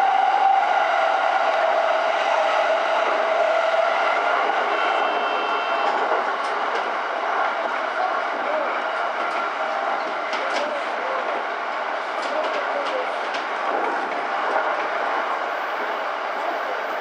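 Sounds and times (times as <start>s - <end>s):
train rolling noise: 0.0s - 17.0s.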